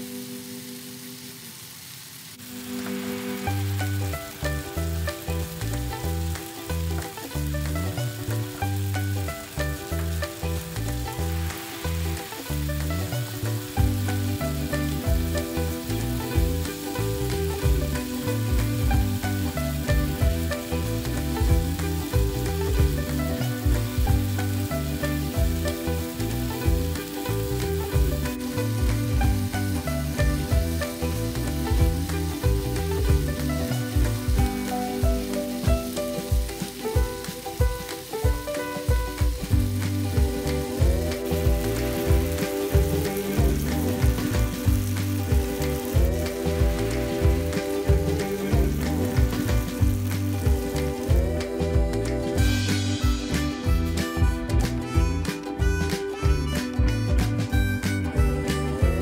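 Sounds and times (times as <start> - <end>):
food sizzling in a pan: 0.0 - 59.0
background music: 2.4 - 59.0.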